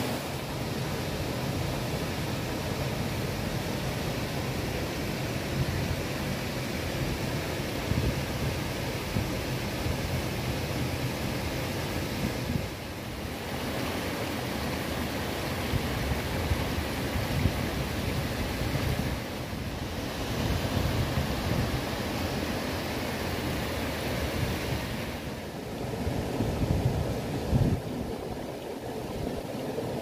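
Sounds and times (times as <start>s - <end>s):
river water rushing: 0.0s - 5.3s, 12.9s - 30.0s
wind buffeting microphone: 25.7s - 30.0s.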